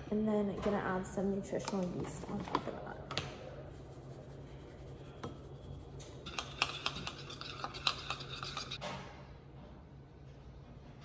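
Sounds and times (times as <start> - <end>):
spoon scraping glass bowl: 5.0 - 8.8.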